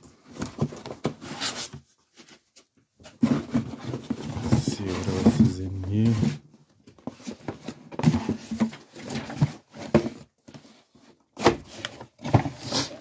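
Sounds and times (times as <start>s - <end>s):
cardboard box rustling and scraping: 0.0s - 6.4s, 7.0s - 13.0s.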